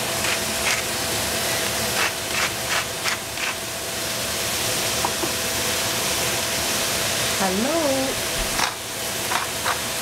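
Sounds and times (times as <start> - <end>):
onion sizzling in a pan: 0.0 - 10.0.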